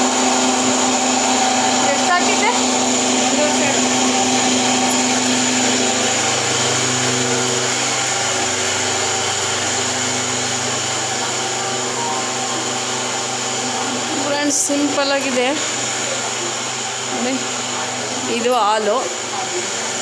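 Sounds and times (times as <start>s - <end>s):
mixer grinder motor drone: 0.0s - 20.0s.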